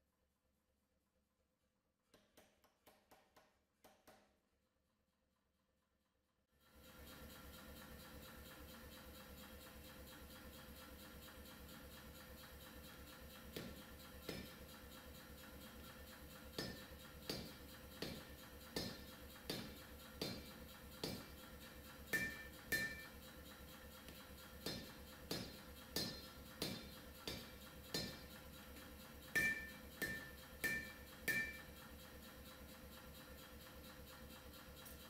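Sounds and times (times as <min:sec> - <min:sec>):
hammer striking hot steel: 0:13.6 - 0:14.7, 0:16.4 - 0:21.4, 0:22.1 - 0:23.2, 0:24.6 - 0:28.4, 0:29.3 - 0:31.7
metallic ping: 0:22.2 - 0:23.1, 0:29.4 - 0:31.7.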